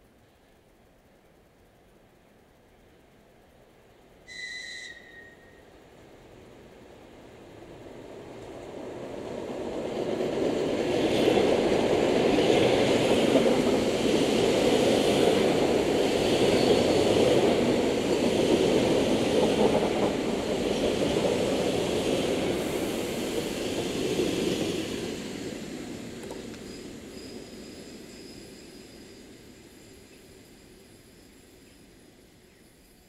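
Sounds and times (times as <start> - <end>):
train wheels rumbling on rails: 0.2 - 33.0
high hiss: 10.8 - 33.0.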